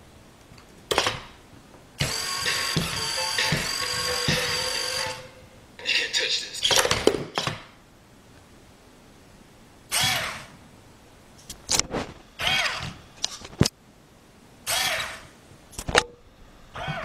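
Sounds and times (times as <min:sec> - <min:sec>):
small electric motors whirring: 0:02.0 - 0:05.4, 0:09.9 - 0:10.5, 0:12.4 - 0:13.0, 0:14.7 - 0:15.2.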